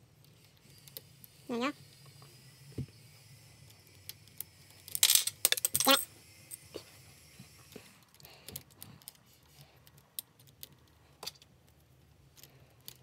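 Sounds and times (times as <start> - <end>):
plastic puzzle pieces clicking: 8.0 - 13.0.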